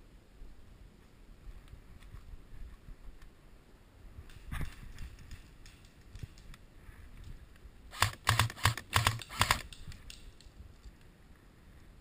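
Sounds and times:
airsoft rifle firing: 7.9s - 10.2s.

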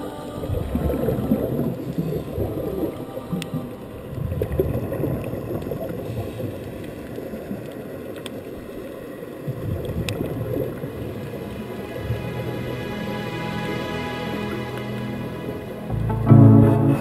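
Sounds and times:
underwater bubbles gurgling: 0.3s - 12.2s
faint clicks: 6.4s - 10.4s.

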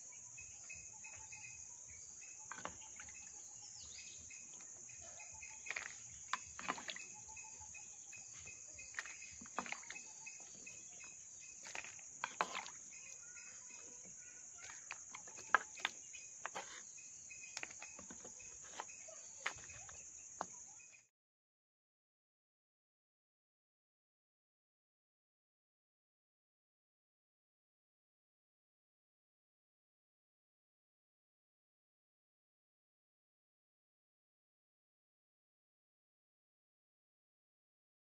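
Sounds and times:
crickets chirring: 0.0s - 21.1s
water splashing: 5.6s - 7.5s, 8.3s - 13.9s.

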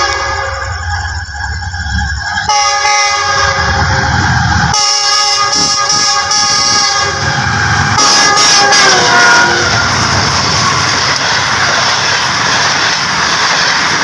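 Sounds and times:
locomotive air horn blasts: 0.0s - 0.8s, 2.5s - 4.0s, 4.7s - 10.0s
rumble of oncoming train: 0.0s - 14.0s.

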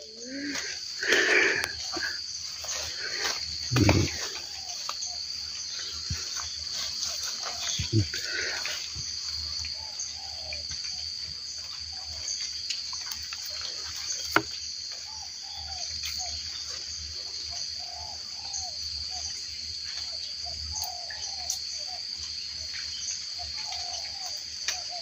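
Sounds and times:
short low bird calls: 0.0s - 6.2s, 7.4s - 8.9s
high insect chorus: 0.0s - 25.0s.

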